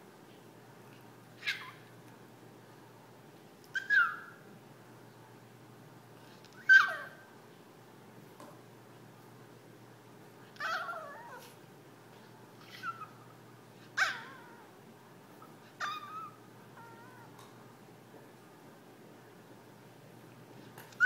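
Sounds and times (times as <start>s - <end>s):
small dog whining: 1.4s - 1.9s, 3.7s - 4.4s, 6.5s - 7.3s, 10.5s - 11.6s, 12.6s - 14.8s, 15.4s - 17.4s.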